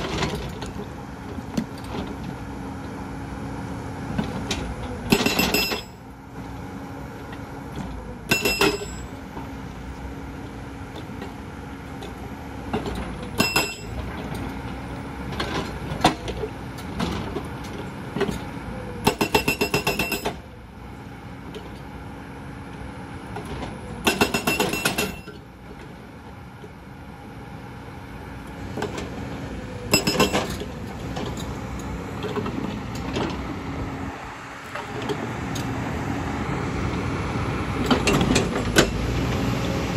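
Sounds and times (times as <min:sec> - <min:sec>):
diesel engine hum: 0:00.0 - 0:39.9
hydraulic breaker hammering stone: 0:05.1 - 0:06.0, 0:08.3 - 0:09.1, 0:13.4 - 0:14.0, 0:19.0 - 0:20.4, 0:24.0 - 0:25.4, 0:29.9 - 0:30.6.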